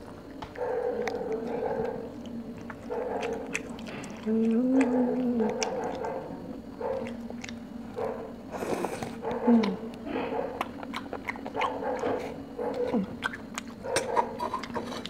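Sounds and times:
close-up chewing: 0.0s - 15.0s
person humming low: 4.2s - 5.5s
wet mouth smacking and clicking: 7.0s - 7.6s, 13.2s - 15.0s.

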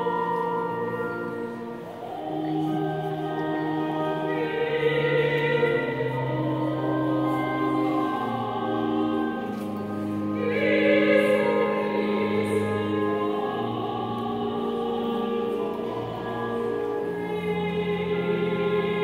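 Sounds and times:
hymn singing: 0.0s - 19.0s
instrumental accompaniment: 0.0s - 19.0s.

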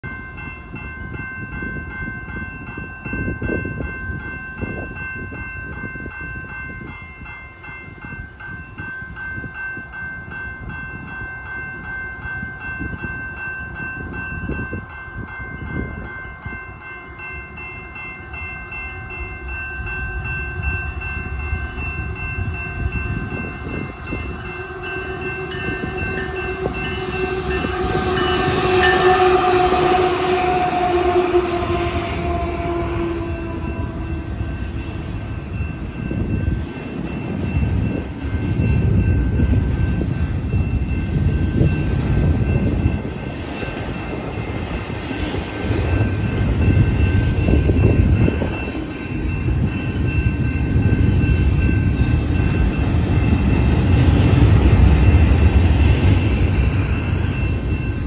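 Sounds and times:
diesel locomotives approaching: 0.0s - 58.0s
railroad crossing bell ringing: 0.0s - 58.0s.

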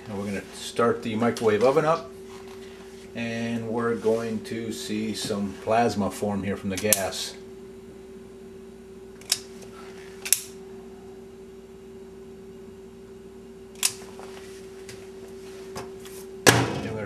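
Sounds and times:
steady low hum: 0.0s - 17.0s
microwave door shutting: 16.5s - 17.0s.

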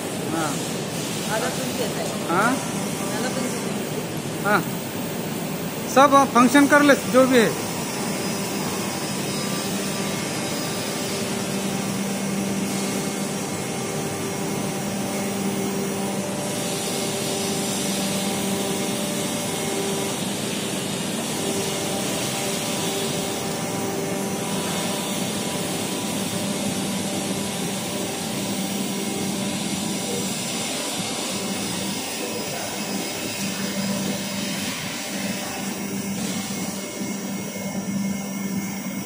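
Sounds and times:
hydraulic lift motor and pump: 0.0s - 39.0s.

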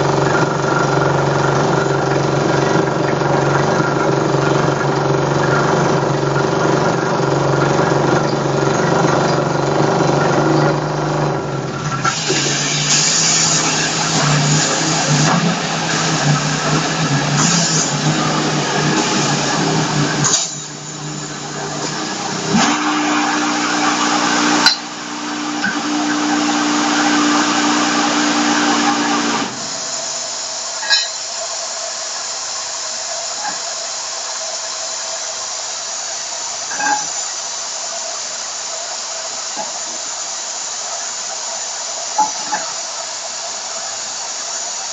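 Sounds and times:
steady hum: 0.0s - 40.2s
drill rig mechanical drone: 0.0s - 44.9s
compressed air hissing: 5.8s - 44.9s.

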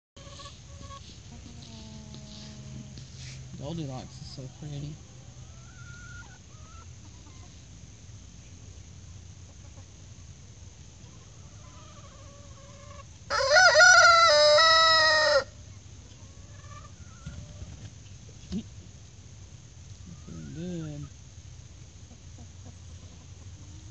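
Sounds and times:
chickens clucking: 0.2s - 19.2s, 19.8s - 23.9s
rooster crowing: 11.6s - 15.6s.

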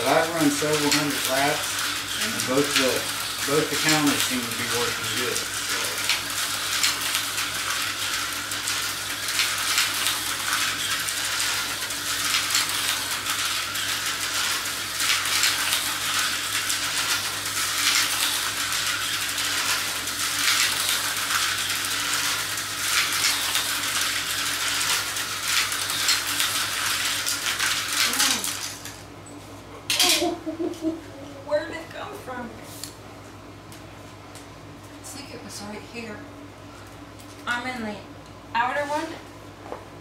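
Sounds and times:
slot cars whirring and rattling: 0.0s - 29.1s.

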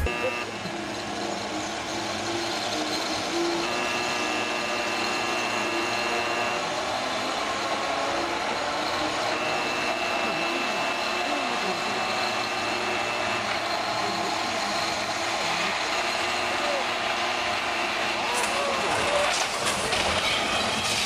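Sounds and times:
high whine: 0.0s - 19.6s
mechanical running noise: 0.0s - 21.0s.

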